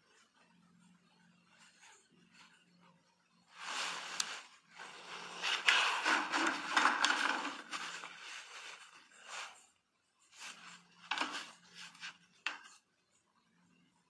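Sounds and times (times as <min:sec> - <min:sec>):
scraping on potter's wheel: 0:03.6 - 0:09.7, 0:10.3 - 0:12.8.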